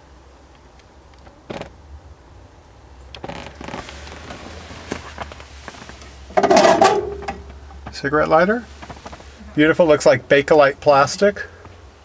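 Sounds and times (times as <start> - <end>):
handling and rustling: 3.2 - 10.2.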